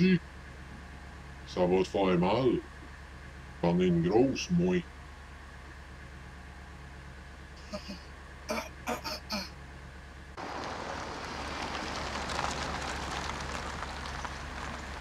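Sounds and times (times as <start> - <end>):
tyres on gravel: 10.4 - 15.0.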